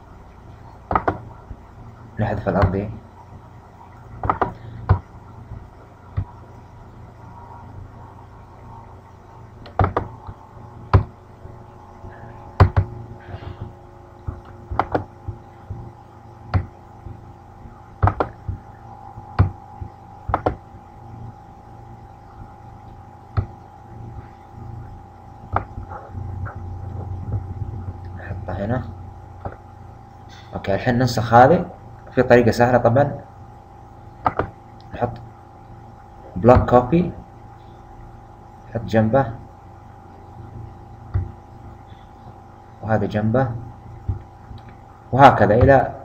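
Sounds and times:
faint steady hum: 0:00.0 - 0:46.0
computer mouse clicking: 0:09.6 - 0:11.1, 0:18.0 - 0:18.6, 0:20.3 - 0:20.6.

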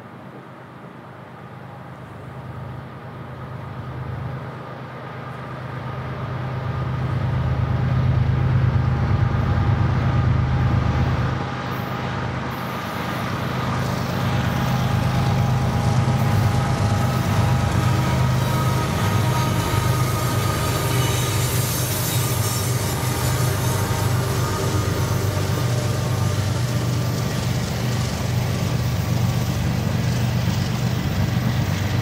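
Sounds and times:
diesel locomotive engine rumble: 0:00.0 - 0:32.0.

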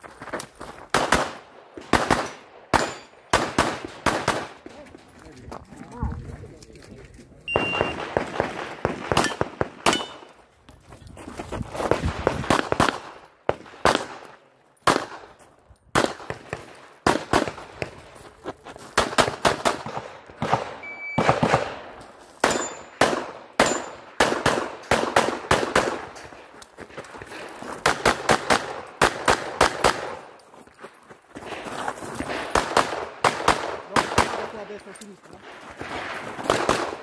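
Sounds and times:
pistol shots: 0:00.9 - 0:04.7, 0:07.5 - 0:10.3, 0:12.4 - 0:15.3, 0:15.9 - 0:17.9, 0:19.0 - 0:26.2, 0:27.8 - 0:30.3, 0:32.5 - 0:34.6, 0:36.4 - 0:37.0.

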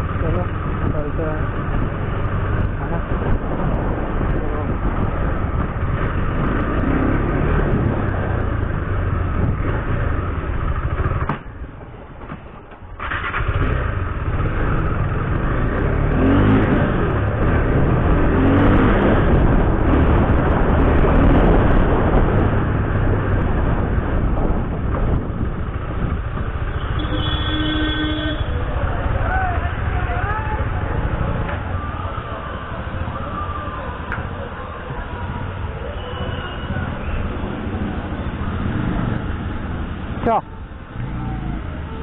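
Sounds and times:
motorcycle engine running: 0:00.0 - 0:11.7
wind noise on microphone: 0:00.0 - 0:12.3, 0:14.3 - 0:29.2
vehicle horn: 0:26.6 - 0:28.6.

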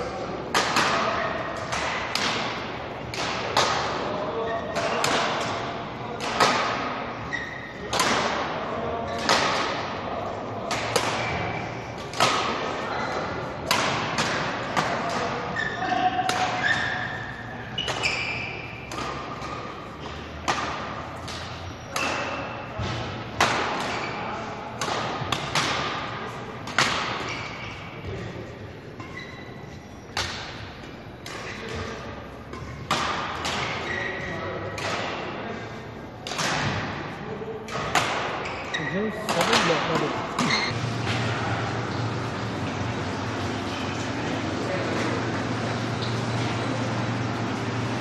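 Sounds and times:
racket hitting shuttlecock: 0:00.5 - 0:04.1, 0:04.7 - 0:07.0, 0:07.8 - 0:09.9, 0:10.6 - 0:12.8, 0:13.6 - 0:17.2, 0:17.8 - 0:27.8, 0:30.1 - 0:35.4, 0:36.2 - 0:38.6, 0:39.3 - 0:44.0
shoes squeaking on wooden floor: 0:07.3 - 0:07.7, 0:40.4 - 0:40.8.

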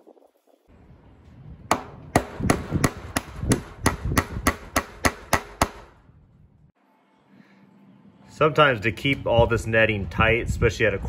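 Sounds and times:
hammer striking nail into wood: 0:01.7 - 0:05.9.

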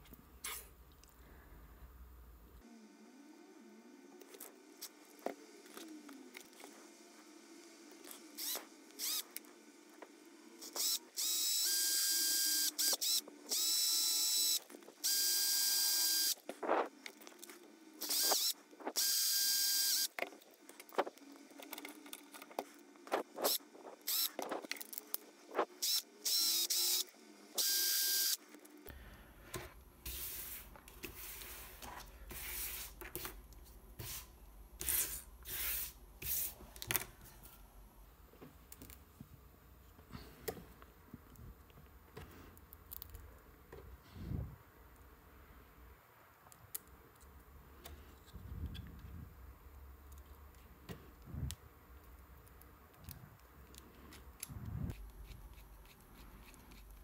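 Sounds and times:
cordless drill whining: 0:08.3 - 0:09.4, 0:10.6 - 0:16.4, 0:18.0 - 0:20.2, 0:23.4 - 0:24.5, 0:25.6 - 0:28.4.

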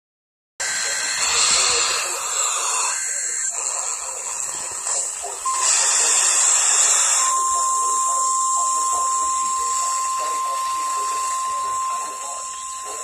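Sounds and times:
radio static hiss: 0:00.6 - 0:13.0
short steady beep: 0:05.4 - 0:13.0.

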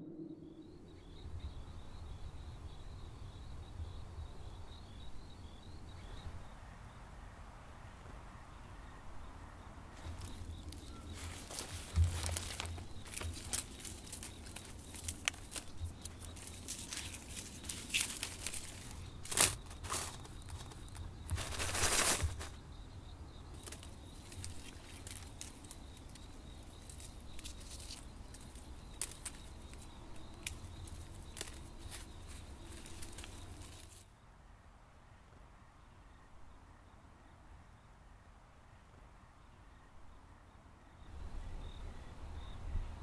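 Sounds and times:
dry pods and twigs rustling: 0:09.9 - 0:34.1
pods rattling into basket: 0:10.2 - 0:22.6.

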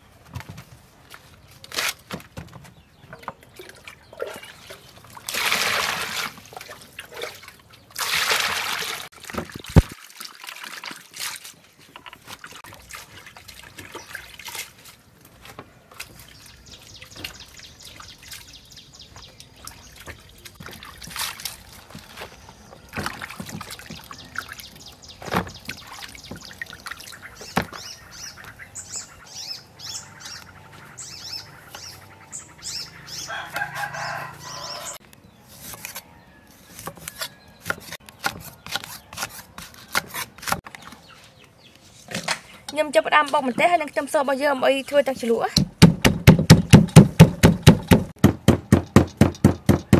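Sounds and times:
hands splashing washing leaves: 0:03.4 - 0:28.6
water pouring into plastic basin: 0:03.6 - 0:11.6.

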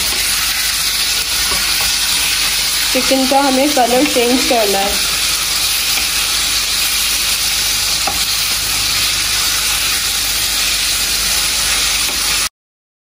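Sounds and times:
chicken sizzling in hot oil: 0:00.0 - 0:12.5.

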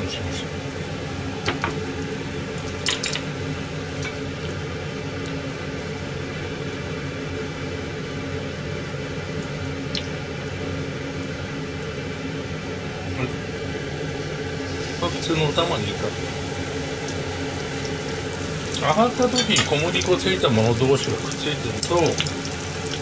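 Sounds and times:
kitchen exhaust fan hum: 0:00.0 - 0:23.0
metal utensils clinking on pot: 0:19.3 - 0:19.9.

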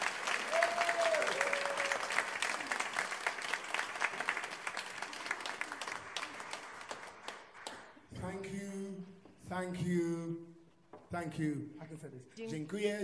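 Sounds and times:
crowd applause: 0:00.0 - 0:08.1
man speaking: 0:08.1 - 0:13.0.

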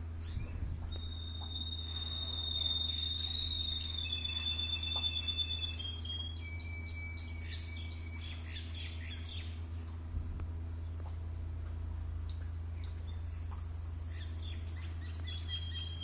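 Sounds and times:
steady low hum: 0:00.0 - 0:16.0
canary singing: 0:00.2 - 0:09.6, 0:13.2 - 0:16.0.

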